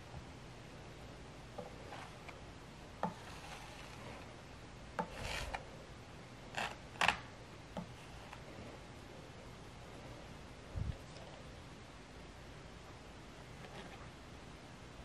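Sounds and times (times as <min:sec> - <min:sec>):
palette knife scraping paint: 0:01.6 - 0:02.4, 0:03.0 - 0:04.3, 0:05.0 - 0:05.6, 0:06.5 - 0:08.5.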